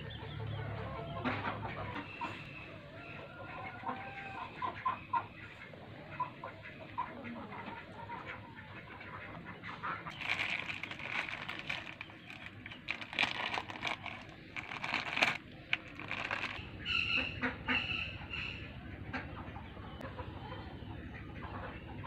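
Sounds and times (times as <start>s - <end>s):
chickens clucking: 0.0s - 11.5s.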